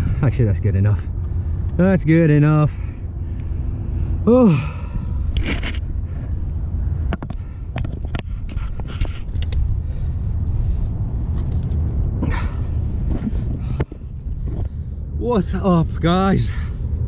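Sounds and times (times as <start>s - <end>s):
wind buffeting microphone: 4.8s - 17.0s
gear handling knocks and clicks: 7.1s - 9.7s.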